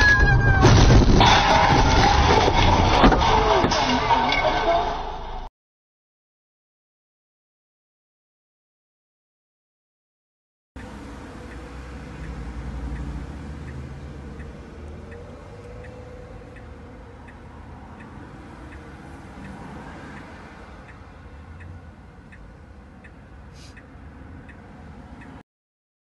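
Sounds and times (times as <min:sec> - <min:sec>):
car indicator ticking: 0:10.8 - 0:25.4
brief hiss: 0:23.5 - 0:23.8.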